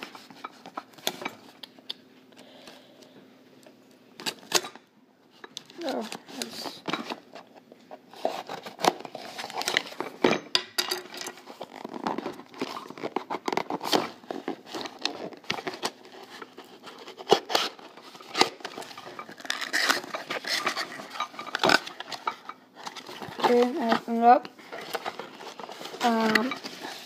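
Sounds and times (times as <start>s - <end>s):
sharp clicks and snaps: 1.6s - 2.0s
cardboard rustling and tearing: 11.4s - 27.0s.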